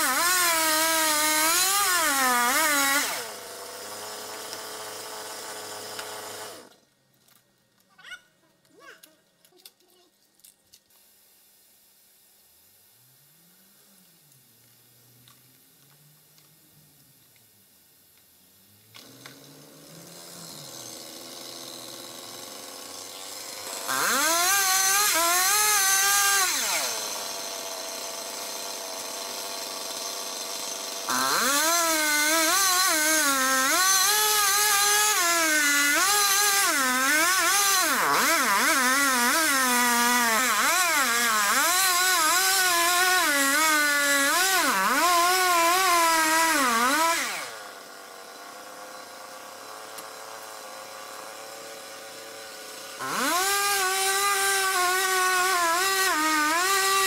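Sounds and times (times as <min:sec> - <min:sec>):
chainsaw cutting through wood: 0:00.0 - 0:06.8, 0:18.7 - 0:57.0
chainsaw revving and idling: 0:00.0 - 0:06.8, 0:18.7 - 0:57.0.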